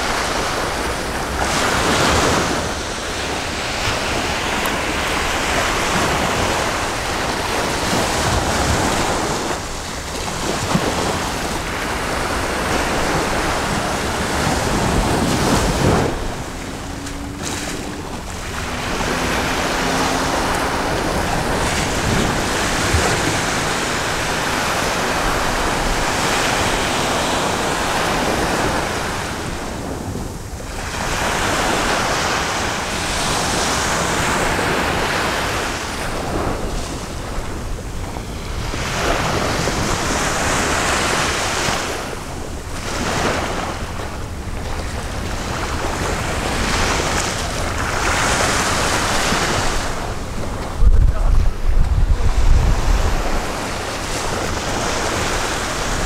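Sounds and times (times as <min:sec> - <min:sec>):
waves washing onto rocky shore: 0:00.0 - 0:56.0
wind buffeting microphone: 0:00.0 - 0:56.0.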